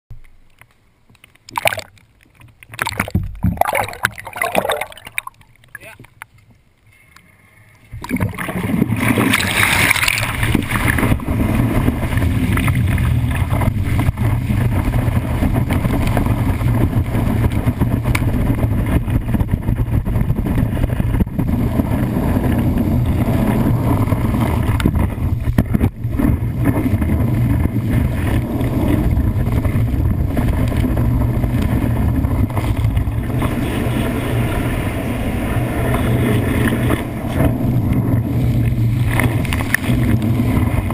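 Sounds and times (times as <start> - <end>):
water rushing and spraying: 2.7 - 6.0, 8.0 - 16.7
boat engine hum: 9.0 - 40.9.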